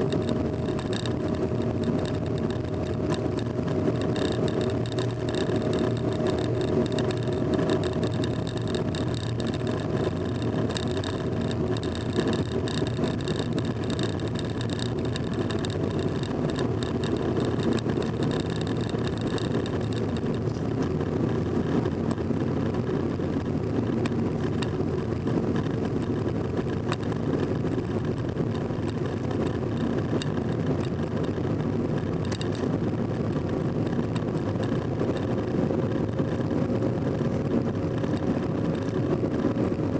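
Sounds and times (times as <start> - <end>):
light high ticking: 0.0 - 21.9
engine and tyre rumble: 0.0 - 39.9.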